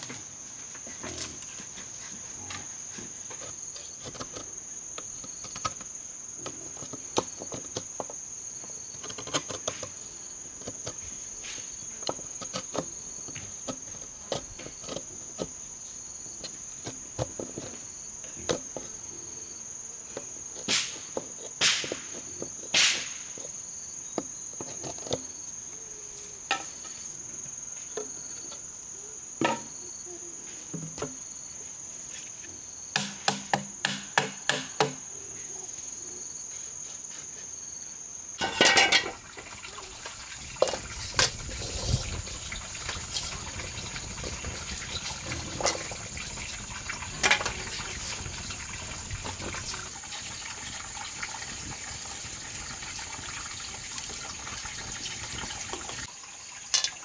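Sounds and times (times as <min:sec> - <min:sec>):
high insect drone: 0:00.0 - 0:57.0
bamboo poles knocking: 0:20.7 - 0:23.2, 0:29.4 - 0:29.7, 0:33.0 - 0:35.0.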